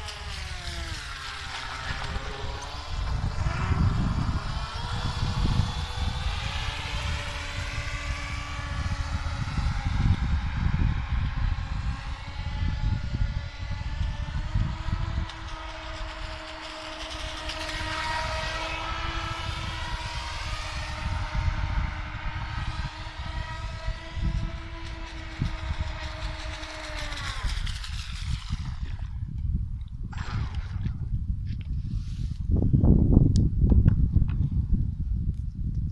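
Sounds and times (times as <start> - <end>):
electric motor high whine: 0.0 - 29.4, 30.1 - 32.4
low rumble: 0.0 - 35.9.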